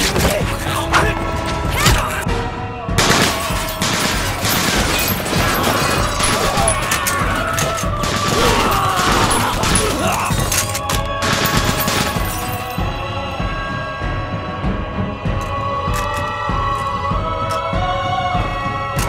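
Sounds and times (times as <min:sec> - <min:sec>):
dramatic music: 0:00.0 - 0:19.0
bullets striking metal: 0:03.0 - 0:12.7
rapid rifle fire: 0:03.0 - 0:12.7
voices crying out: 0:03.2 - 0:13.8.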